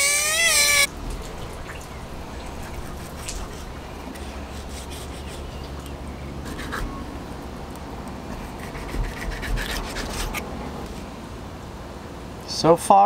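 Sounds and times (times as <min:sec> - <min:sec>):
low steady rumble: 0:00.6 - 0:11.5
knife scraping fish skin: 0:08.4 - 0:10.4.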